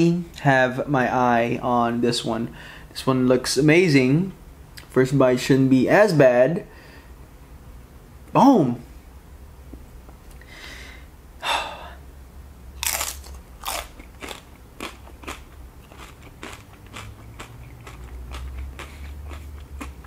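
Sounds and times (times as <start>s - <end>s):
chewing crunches: 12.8s - 20.0s
chips crunching: 12.8s - 20.0s.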